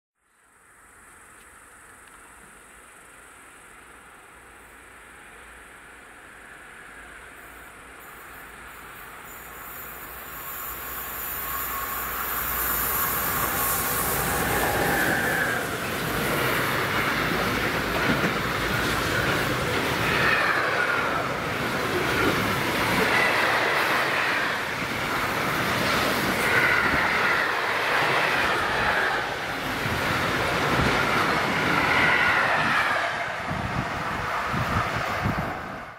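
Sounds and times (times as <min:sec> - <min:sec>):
wheels on rail rush: 0:00.6 - 0:35.9
freight train rolling past: 0:04.4 - 0:35.9
wheels squealing: 0:09.3 - 0:33.4.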